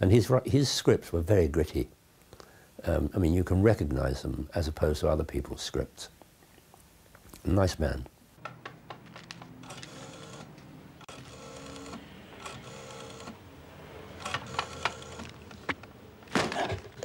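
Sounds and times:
small machine whirring: 0:09.6 - 0:15.7.

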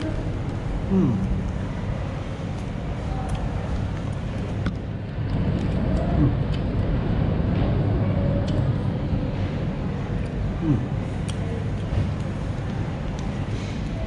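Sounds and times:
low indoor rumble: 0:00.0 - 0:14.0
faint distant voices: 0:07.8 - 0:14.0.

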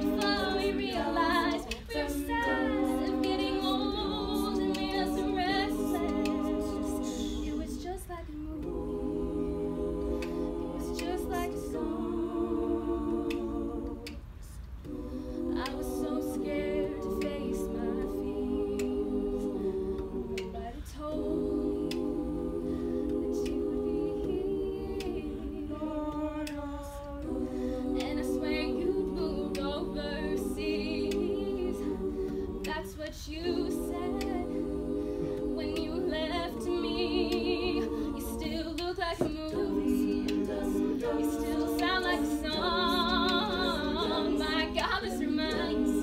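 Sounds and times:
woman singing lead: 0:35.4 - 0:46.0.

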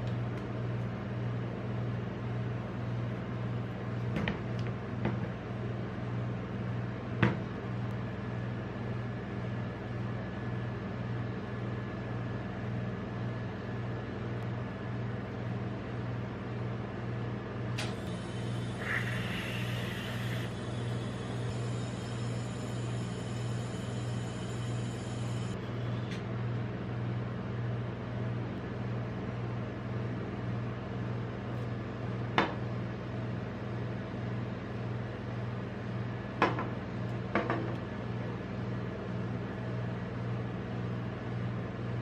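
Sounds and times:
compressor humming: 0:17.2 - 0:26.8.

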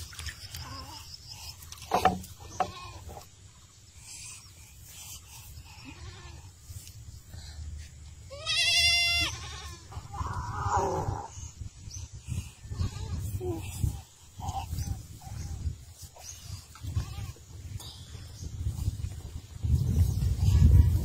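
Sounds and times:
farm animal bleating: 0:02.1 - 0:03.2, 0:05.8 - 0:06.5, 0:08.3 - 0:10.4, 0:16.8 - 0:17.4.

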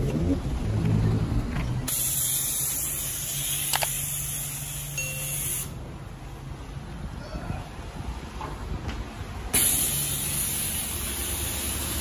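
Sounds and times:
pressure washer spraying: 0:01.9 - 0:05.7, 0:09.6 - 0:12.0.

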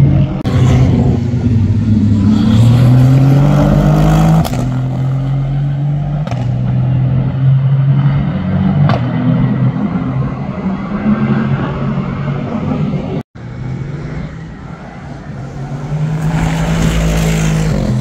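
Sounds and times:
racing car engine accelerating: 0:00.4 - 0:12.5.

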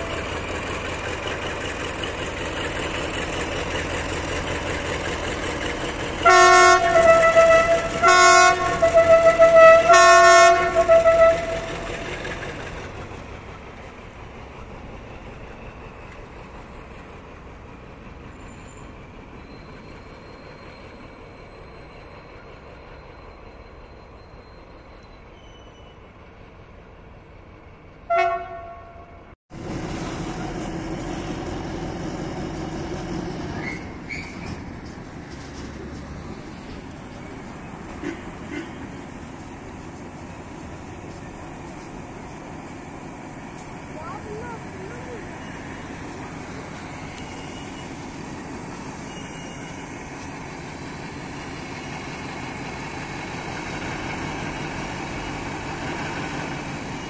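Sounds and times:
diesel locomotive engine idling: 0:00.0 - 0:57.0
freight train rumbling on track: 0:00.0 - 0:57.0
locomotive horn blasts: 0:06.2 - 0:11.8, 0:28.1 - 0:29.4.

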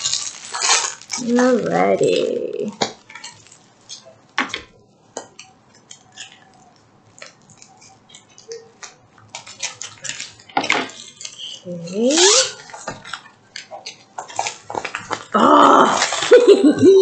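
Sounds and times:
plastic packaging crinkling: 0:00.0 - 0:17.0.

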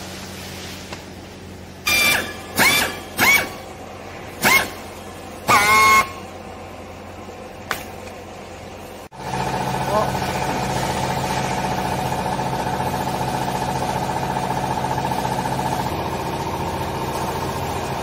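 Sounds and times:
strapping tool motor whirring: 0:01.9 - 0:03.7, 0:04.4 - 0:04.8, 0:05.5 - 0:06.2.

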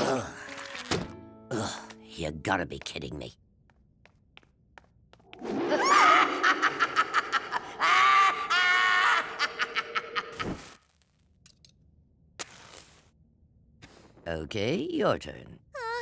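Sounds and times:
cartoon character cackling laugh: 0:05.7 - 0:10.5.

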